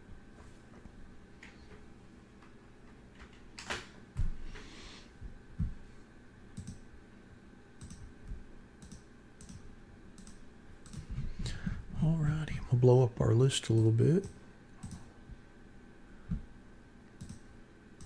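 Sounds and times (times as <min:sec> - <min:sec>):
faint steady hum: 0:00.0 - 0:18.0
mouse and keyboard clicks: 0:07.8 - 0:08.1, 0:08.8 - 0:09.6, 0:14.2 - 0:15.1, 0:17.2 - 0:17.4.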